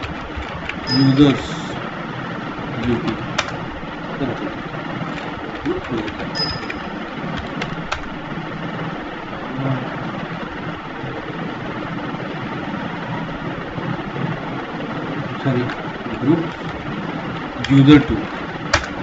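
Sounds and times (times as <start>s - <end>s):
background hum: 0.0s - 19.0s
keyboard key clicks: 18.7s - 19.0s.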